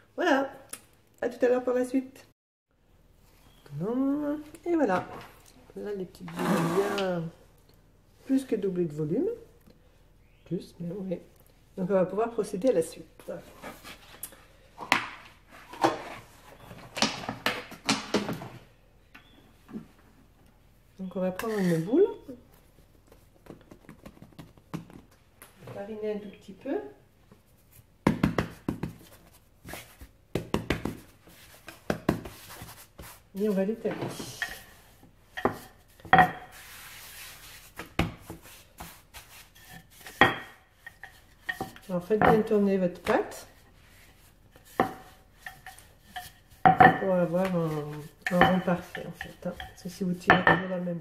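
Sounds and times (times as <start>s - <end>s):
rolling pin rubbing dough: 28.8s - 50.2s.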